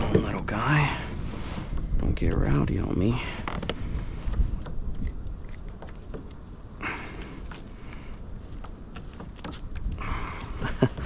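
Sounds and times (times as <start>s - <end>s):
wind rumble on microphone: 0.0s - 11.0s.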